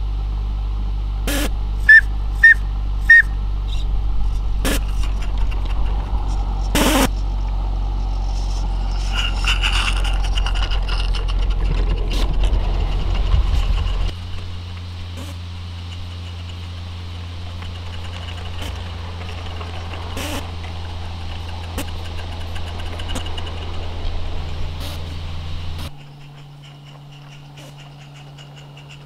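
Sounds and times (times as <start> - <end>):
model train rumbling on track: 1.6 - 29.0.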